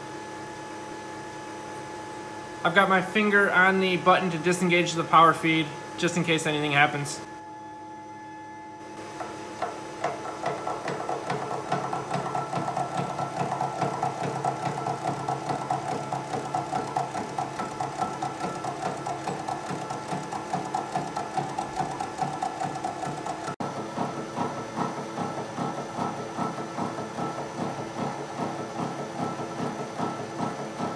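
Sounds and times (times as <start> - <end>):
milling machine motor hum: 8.7 - 30.9.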